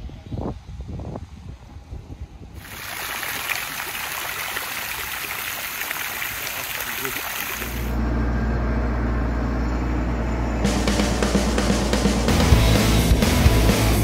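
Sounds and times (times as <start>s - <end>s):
fountain water splashing into basin: 2.6s - 8.0s
music with low bass: 10.6s - 14.0s.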